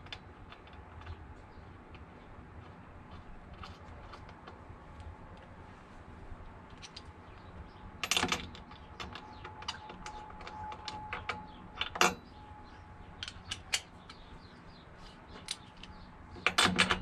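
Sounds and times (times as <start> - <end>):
socket wrench clicking and clinking: 13.2 - 14.3.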